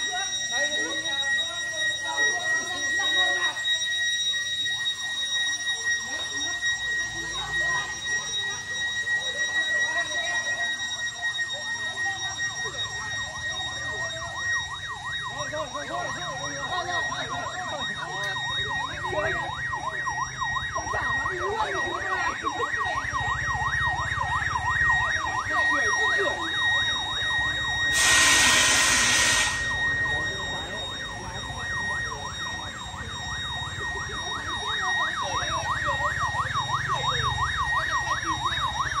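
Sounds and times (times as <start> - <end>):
motorcycle siren yelping: 0.0 - 39.0
loud hiss: 28.0 - 29.6.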